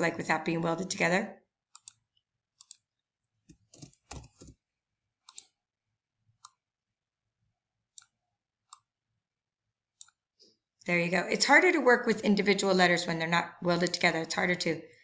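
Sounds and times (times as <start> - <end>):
computer mouse clicks: 1.7 - 2.9, 5.2 - 5.6, 6.4 - 6.6, 7.9 - 8.9, 10.0 - 10.2
keyboard keystrokes: 3.5 - 4.6.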